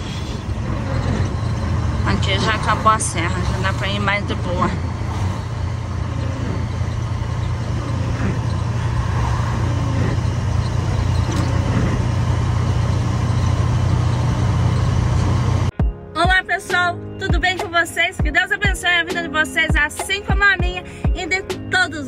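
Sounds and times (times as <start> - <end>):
truck diesel engine drone: 0.0 - 15.7
tyres on wet road: 0.0 - 15.7.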